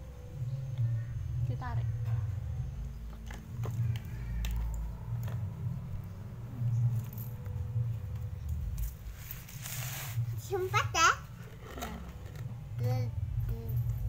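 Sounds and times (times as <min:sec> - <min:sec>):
steady low rumble: 0:00.0 - 0:09.2.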